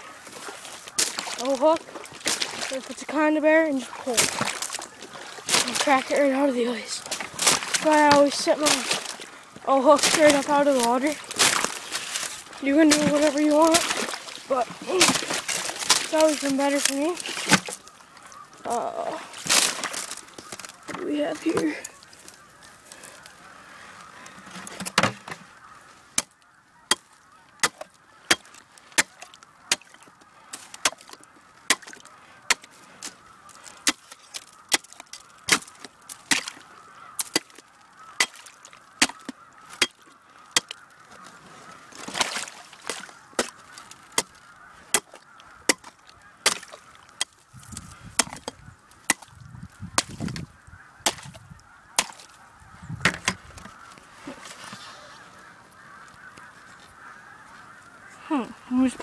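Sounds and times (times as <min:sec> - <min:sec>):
geese honking faintly: 0:00.0 - 0:59.0
hand tool chopping ice: 0:27.6 - 0:30.0, 0:30.6 - 0:32.7, 0:33.8 - 0:36.6, 0:37.2 - 0:37.6, 0:38.2 - 0:40.0, 0:44.9 - 0:47.4, 0:48.2 - 0:49.3, 0:51.0 - 0:51.3.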